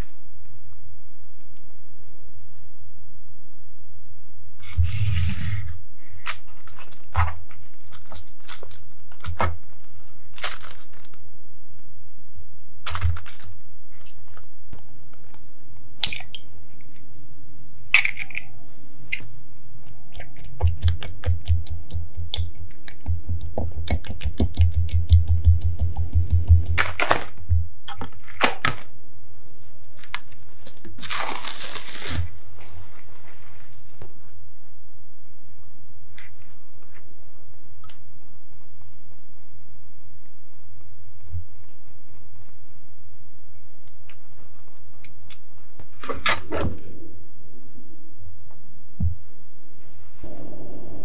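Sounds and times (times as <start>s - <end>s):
plastic cling film crinkling: 6.2s - 11.2s, 12.8s - 14.5s, 29.9s - 34.1s
egg cracking: 17.9s - 18.5s, 20.1s - 28.8s.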